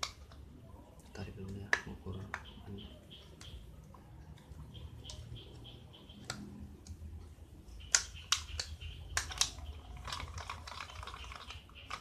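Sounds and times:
drink can crinkling: 0:08.3 - 0:12.0.

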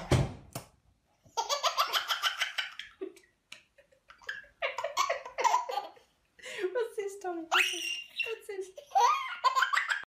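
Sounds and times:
baby laughing: 0:01.3 - 0:03.2, 0:04.1 - 0:06.1, 0:07.5 - 0:10.0.

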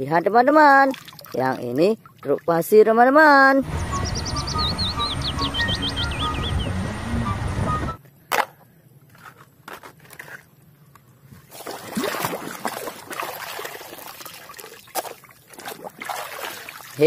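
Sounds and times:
water sloshing and trickling: 0:00.6 - 0:02.7, 0:11.4 - 0:17.0
background music: 0:03.6 - 0:08.0
birds chirping: 0:03.6 - 0:08.0.

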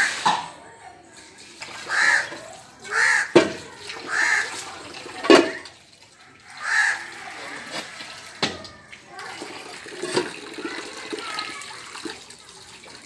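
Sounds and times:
steel pots clanking on concrete: 0:00.0 - 0:06.8, 0:07.4 - 0:13.0
crow cawing: 0:01.9 - 0:03.4, 0:04.1 - 0:04.7, 0:06.2 - 0:09.0.

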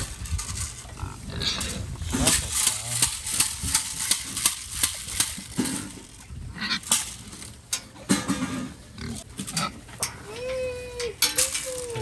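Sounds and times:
pigs grunting and squealing: 0:00.9 - 0:02.4, 0:05.7 - 0:06.9, 0:08.6 - 0:10.9.

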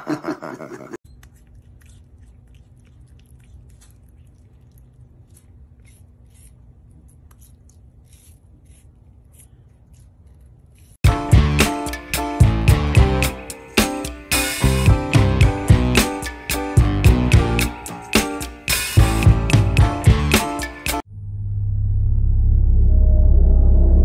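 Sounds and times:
porcupine chewing fruit: 0:01.0 - 0:11.0
music: 0:11.0 - 0:21.0.

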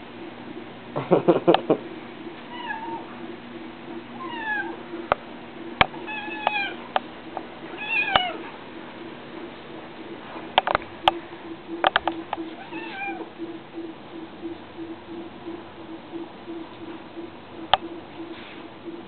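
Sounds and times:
cat meowing: 0:12.6 - 0:13.2.

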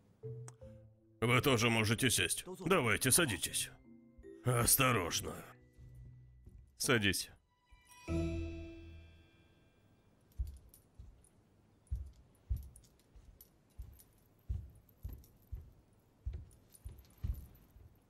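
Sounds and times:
faint metallic jingle: 0:02.6 - 0:18.0
slow soft footsteps: 0:05.1 - 0:07.0, 0:10.2 - 0:18.0.

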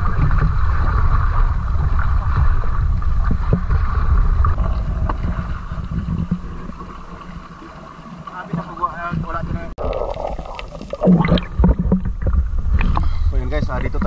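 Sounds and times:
wind rumble on microphone: 0:00.0 - 0:07.8, 0:09.0 - 0:09.8, 0:11.1 - 0:14.0
water rushing along boat hull: 0:00.0 - 0:14.0.

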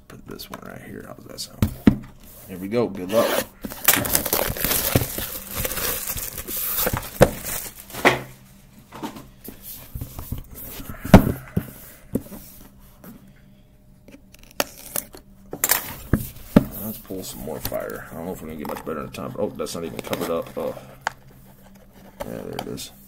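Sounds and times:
cardboard rustling and scraping: 0:01.6 - 0:12.6, 0:15.8 - 0:22.9.

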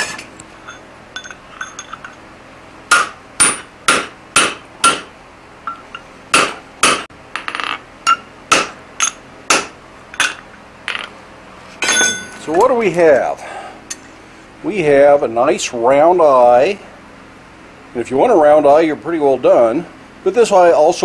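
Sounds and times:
light metal clinks: 0:00.6 - 0:02.2
hammer ringing on anvil: 0:02.9 - 0:05.1, 0:05.7 - 0:11.1, 0:11.8 - 0:12.6.

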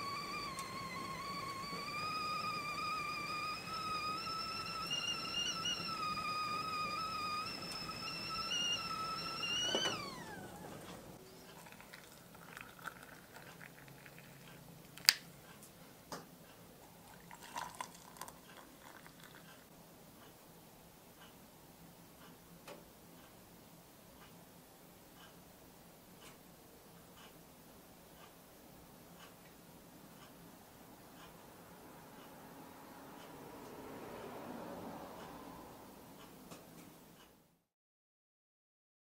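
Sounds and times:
kettle whistling: 0:00.0 - 0:14.1, 0:17.0 - 0:19.5.

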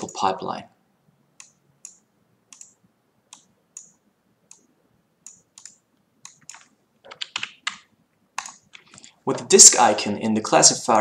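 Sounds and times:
computer mouse clicks: 0:01.4 - 0:09.2.

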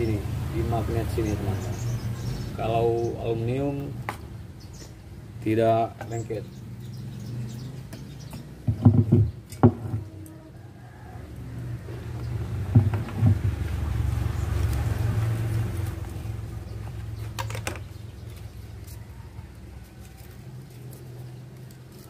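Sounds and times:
speaker parts knocking on wood: 0:08.3 - 0:10.1, 0:12.6 - 0:13.6.

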